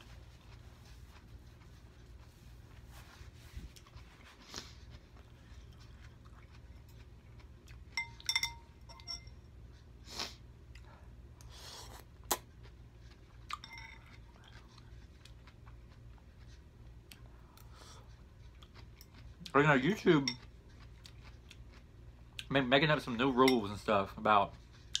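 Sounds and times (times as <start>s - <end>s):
fork clinking against glass bowl: 8.0s - 9.4s, 13.5s - 14.2s, 23.4s - 23.7s
slurping and chewing noodles: 9.8s - 21.9s.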